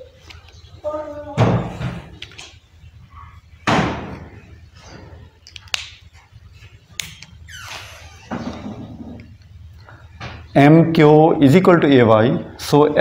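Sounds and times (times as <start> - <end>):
loud thump: 3.6 - 4.2.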